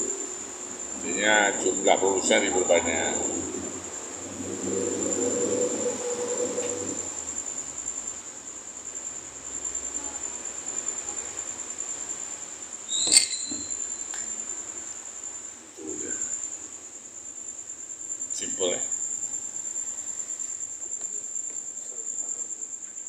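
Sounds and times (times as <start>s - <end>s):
crickets trilling: 0.0s - 23.0s
sharp ringing clink: 12.9s - 14.0s.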